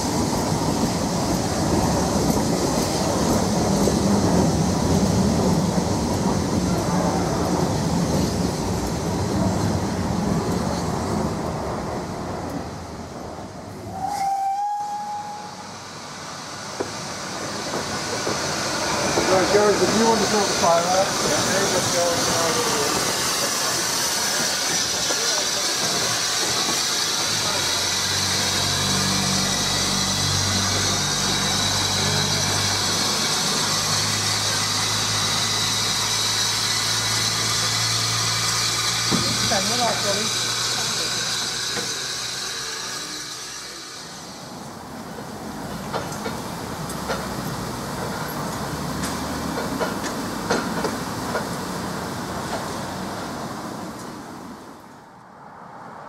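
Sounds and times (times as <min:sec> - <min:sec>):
steam locomotive hissing: 0:13.7 - 0:54.2.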